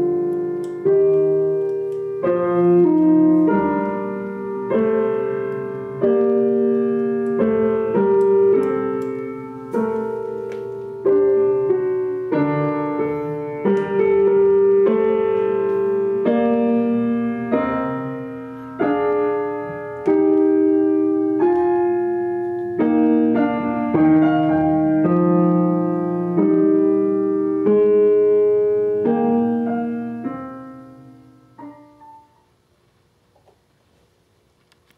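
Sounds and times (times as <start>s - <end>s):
slow piano music: 0.0s - 32.7s.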